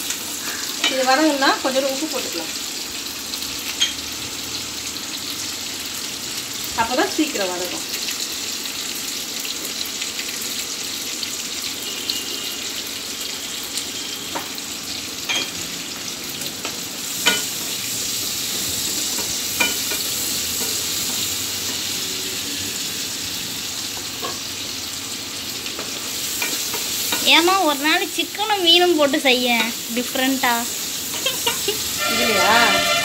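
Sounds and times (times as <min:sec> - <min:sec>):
onions sizzling in oil: 0:00.0 - 0:33.0.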